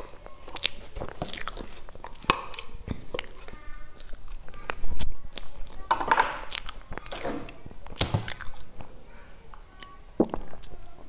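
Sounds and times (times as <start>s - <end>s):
person chewing: 0.0s - 10.8s.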